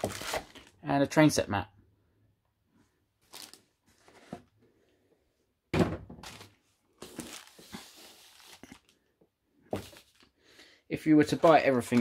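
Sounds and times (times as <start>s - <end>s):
rustling handling: 11.2s - 12.0s.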